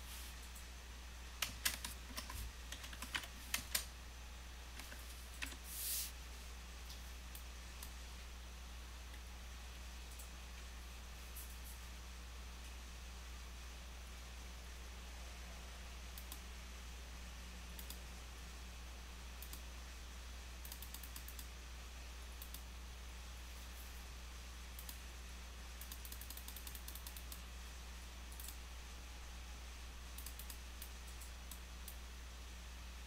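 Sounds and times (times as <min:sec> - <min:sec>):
low electrical hum: 0:00.0 - 0:33.0
keyboard typing: 0:01.4 - 0:03.9, 0:20.6 - 0:21.5, 0:25.8 - 0:27.4, 0:30.2 - 0:32.0.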